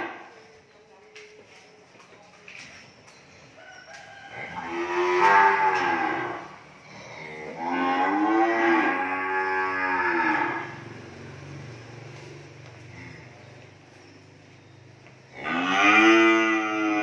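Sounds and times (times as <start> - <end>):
cattle mooing: 4.3 - 11.0, 15.3 - 17.0.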